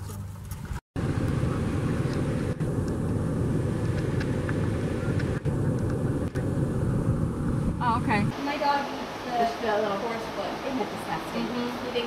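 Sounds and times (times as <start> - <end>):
car engine and road hum: 0.0 - 8.4.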